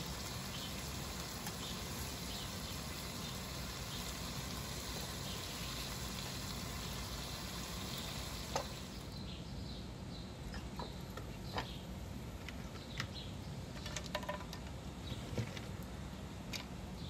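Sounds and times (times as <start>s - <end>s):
butter sizzling in a frying pan: 0.0s - 9.1s.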